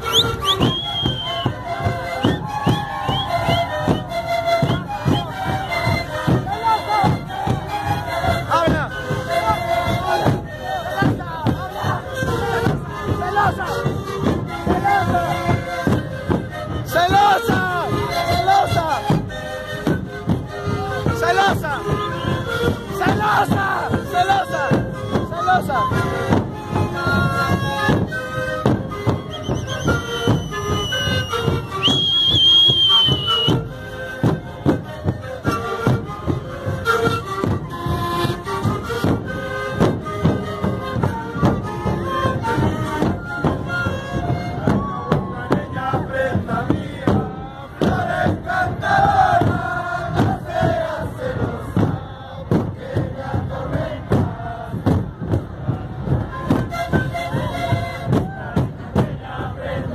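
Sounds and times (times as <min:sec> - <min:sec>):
high whistle: 0:00.0 - 0:06.1, 0:28.2 - 0:33.7
crowd shouting: 0:00.0 - 0:19.0, 0:20.8 - 0:26.5, 0:41.4 - 0:59.9
panpipes playing short notes: 0:00.0 - 0:51.4, 0:55.5 - 0:59.4
bass drum beats: 0:00.0 - 0:59.9.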